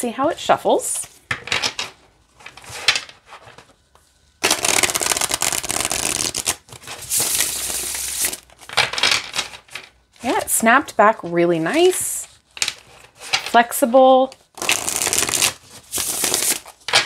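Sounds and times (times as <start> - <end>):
cards riffle-shuffling: 4.4 - 8.5, 14.3 - 17.0.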